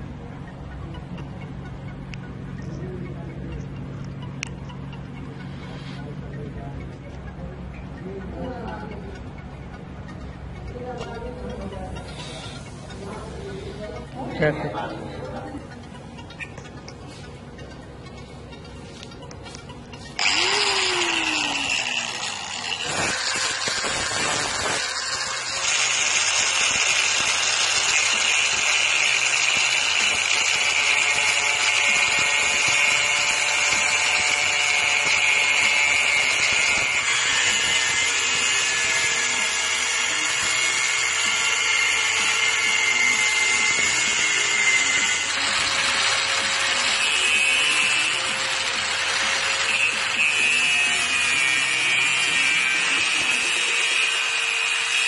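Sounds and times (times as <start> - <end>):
angle grinder cutting steel: 20.2 - 55.0.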